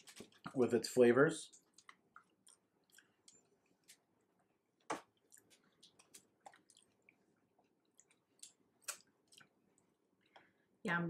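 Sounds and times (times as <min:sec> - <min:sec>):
faint chewing: 0:00.0 - 0:10.6
small mouth clicks: 0:08.0 - 0:09.6.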